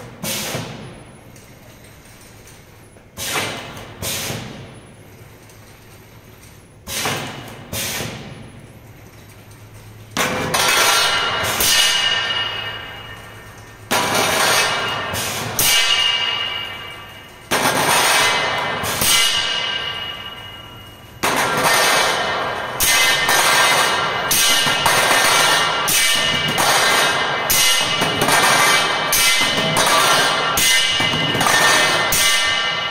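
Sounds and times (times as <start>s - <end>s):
steel tubes clanging on metal: 10.6s - 32.9s.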